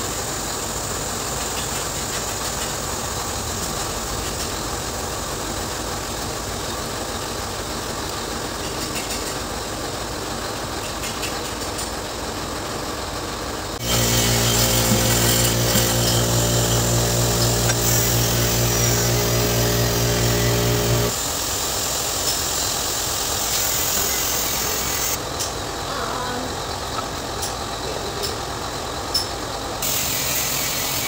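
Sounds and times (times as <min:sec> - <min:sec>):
low background hum: 0:13.2 - 0:21.1
motor running steadily: 0:13.8 - 0:21.2.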